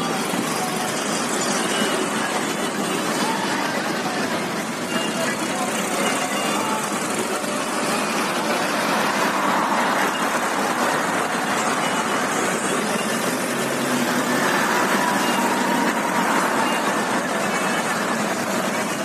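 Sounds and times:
tractors driving past: 0.0 - 19.0.

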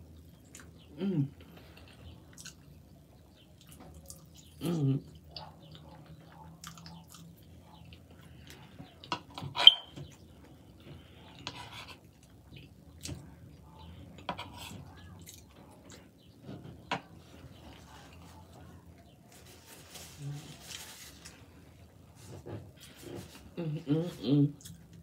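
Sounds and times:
chewing: 0.2 - 9.3, 10.8 - 16.2.

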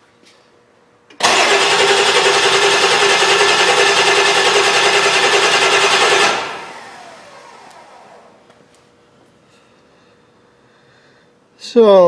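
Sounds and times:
diesel engine cranking on starter: 1.1 - 8.4.

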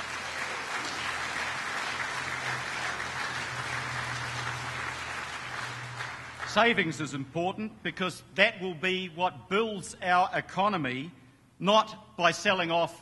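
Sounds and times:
audience applause: 0.0 - 7.0.

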